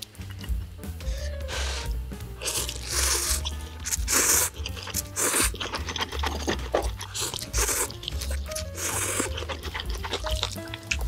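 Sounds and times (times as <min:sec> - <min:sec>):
background music: 0:00.0 - 0:11.0
person chewing: 0:00.0 - 0:11.0
person slurping noodles: 0:01.5 - 0:10.8.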